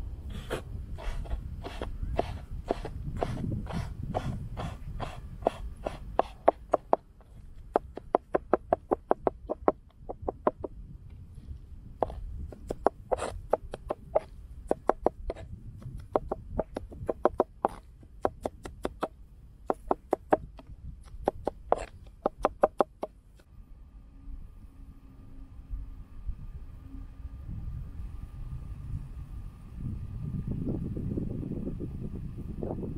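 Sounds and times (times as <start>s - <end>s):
knife chopping on wooden board: 0.5s - 7.0s, 12.0s - 15.4s, 16.2s - 19.1s, 19.7s - 23.1s.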